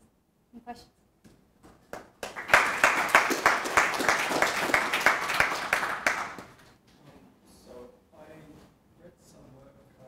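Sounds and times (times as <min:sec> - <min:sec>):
audience applauding: 0:01.9 - 0:06.6.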